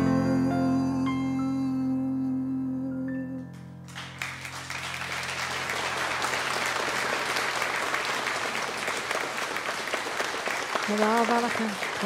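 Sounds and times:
song's last chord: 0.0s - 3.9s
audience applause: 3.9s - 12.0s.

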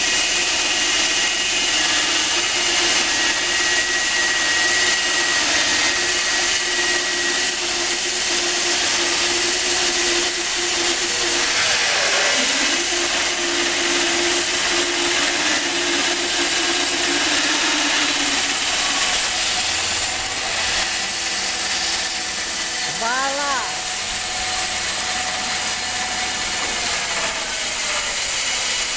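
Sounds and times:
band sawmill motor whine: 0.0s - 28.9s
saw cutting log hiss: 16.5s - 28.9s.

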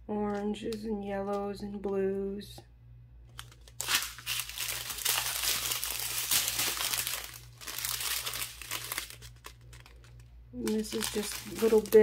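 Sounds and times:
plastic bags crinkling: 3.3s - 12.0s.

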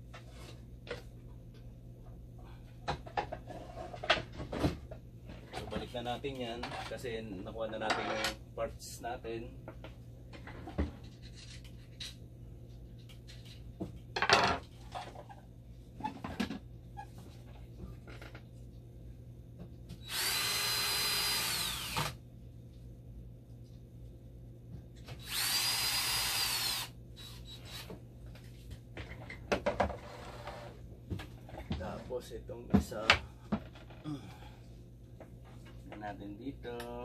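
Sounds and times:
cordless drill whining: 20.0s - 22.2s, 25.2s - 27.9s.

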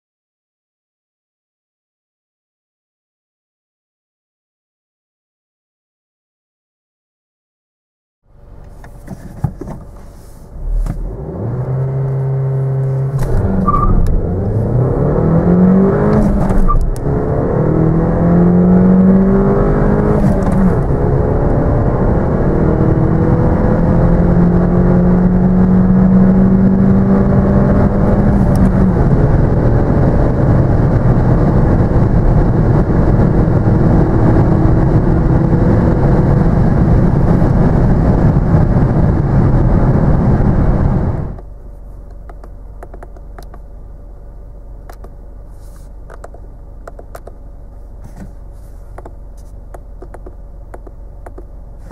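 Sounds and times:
car engine accelerating: 8.3s - 51.9s.

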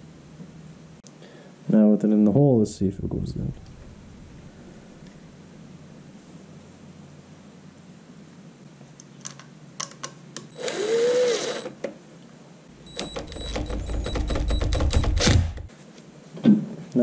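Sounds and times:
drill whine: 10.5s - 11.8s
drill motor humming and clicking: 10.6s - 11.7s.

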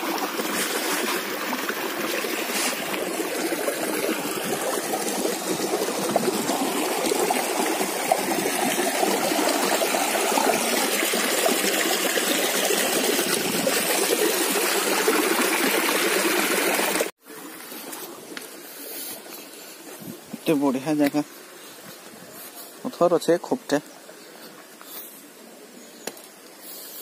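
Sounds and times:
stream rushing over stones: 0.0s - 18.6s.

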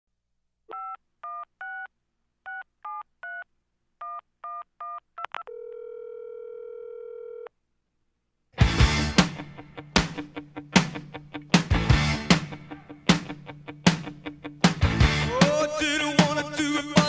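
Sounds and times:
telephone ringback tone: 5.5s - 7.5s
loud rock music with guitar: 8.6s - 17.0s.

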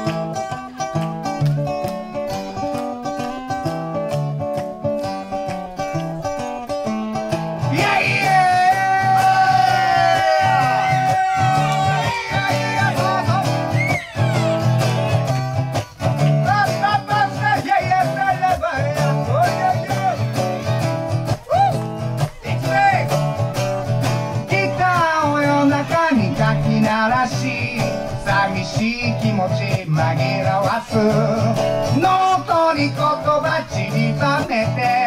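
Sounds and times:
acoustic guitar strumming: 0.0s - 35.0s.

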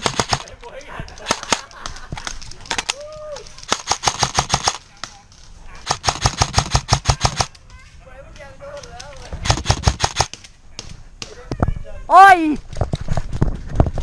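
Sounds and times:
airsoft rifle bursts: 0.0s - 2.9s, 5.8s - 7.7s.

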